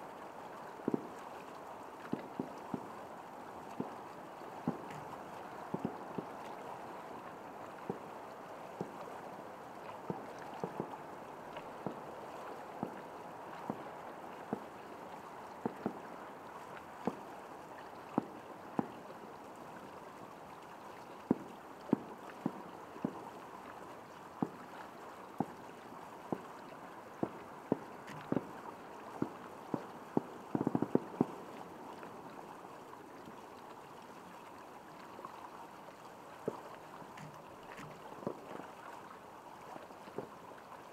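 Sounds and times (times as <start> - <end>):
distant fireworks bursting: 30.5 - 31.4.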